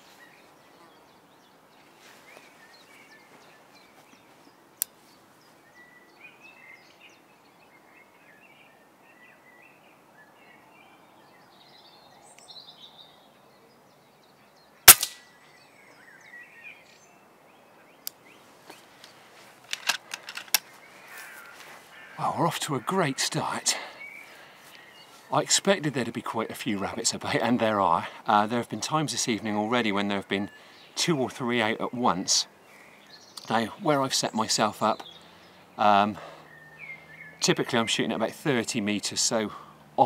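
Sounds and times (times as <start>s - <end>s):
birds chirping: 0.0s - 40.0s
air rifle shot: 14.9s - 15.3s
faint clicks: 18.0s - 20.7s.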